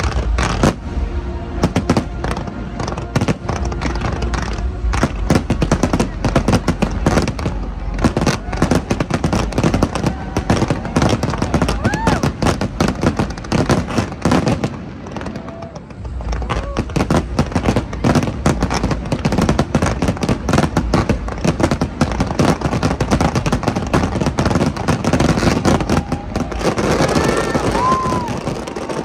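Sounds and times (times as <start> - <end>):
fireworks bangs and crackling: 0.0 - 29.0.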